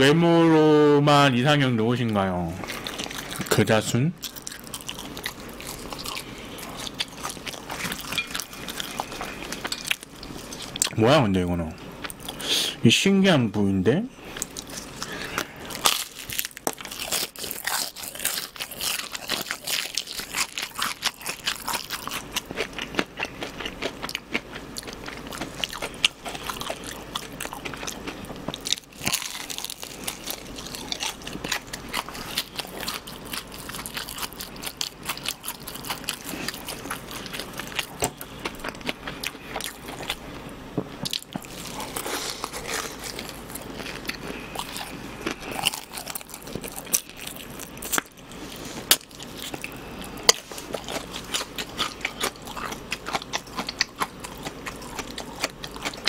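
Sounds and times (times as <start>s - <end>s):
crunching and chewing fried chicken: 2.1s - 11.1s, 11.8s - 12.6s, 14.2s - 56.0s.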